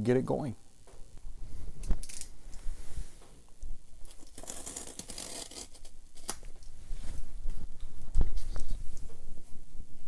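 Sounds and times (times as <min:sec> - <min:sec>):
scraping and rustling on cardboard: 0:04.2 - 0:05.9.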